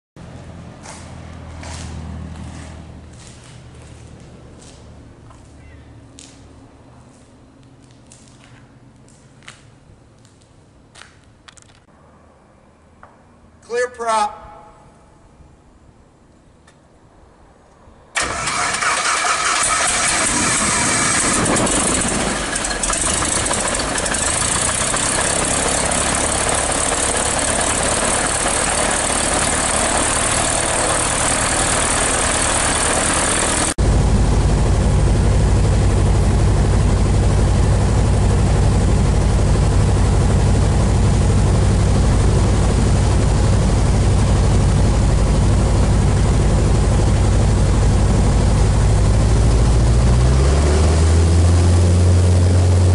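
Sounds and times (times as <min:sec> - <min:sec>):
propeller plane engine running: 0:00.2 - 0:07.2, 0:18.2 - 0:52.9.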